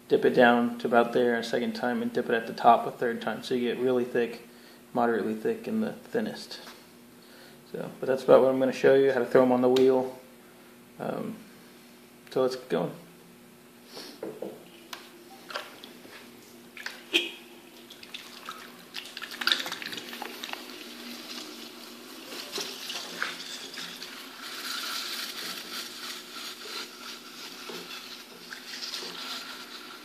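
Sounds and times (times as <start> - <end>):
potter's wheel motor hum: 19.8 - 30.0.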